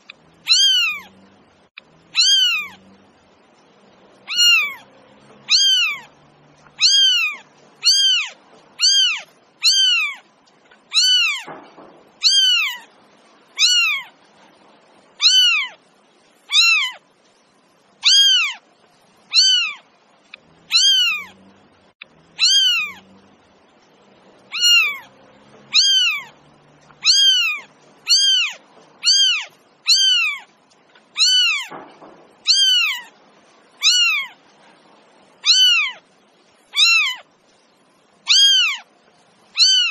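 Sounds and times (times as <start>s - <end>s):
cat meowing: 0.4s - 1.2s, 2.1s - 2.9s, 4.2s - 10.3s, 10.9s - 11.6s, 12.2s - 12.9s, 13.5s - 14.2s, 15.2s - 15.8s, 16.5s - 17.0s, 18.0s - 18.6s, 19.3s - 19.9s, 20.6s - 21.4s, 22.3s - 23.1s, 24.5s - 26.4s, 27.0s - 31.8s, 32.4s - 33.2s, 33.8s - 34.5s, 35.4s - 36.1s, 36.7s - 37.3s, 38.2s - 38.9s, 39.5s - 39.9s.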